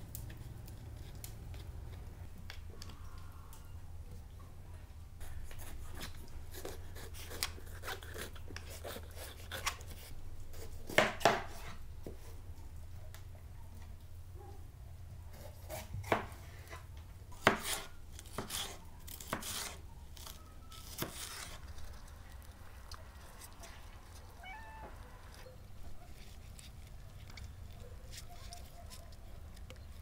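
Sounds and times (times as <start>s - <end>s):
knife chopping on cutting board: 10.9s - 11.7s, 15.4s - 16.3s, 17.4s - 19.8s.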